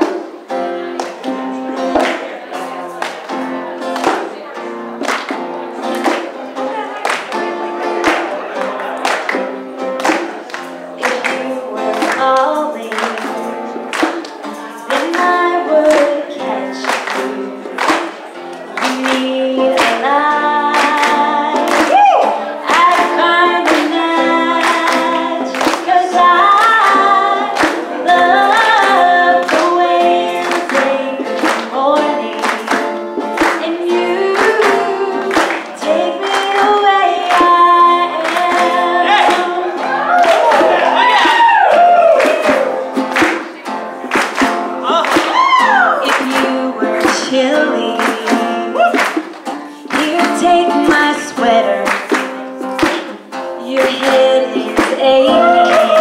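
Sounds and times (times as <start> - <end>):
music with steady beat: 0.0 - 56.0
woman singing into microphone: 11.0 - 13.8, 14.4 - 17.9, 18.8 - 41.0, 45.5 - 52.3, 53.6 - 56.0.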